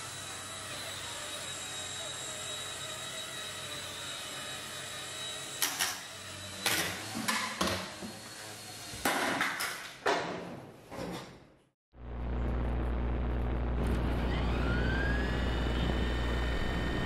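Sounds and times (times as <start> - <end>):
small helicopter motor whine: 0.0 - 9.0, 13.7 - 17.0.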